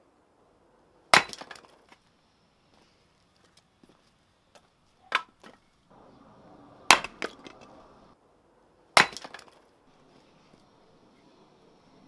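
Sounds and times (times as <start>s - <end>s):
axe splitting firewood: 1.1s - 2.0s, 5.0s - 5.7s, 6.9s - 7.9s, 9.0s - 9.6s
split wood pieces knocking: 1.1s - 2.0s, 5.1s - 5.6s, 6.9s - 7.8s, 9.0s - 9.6s.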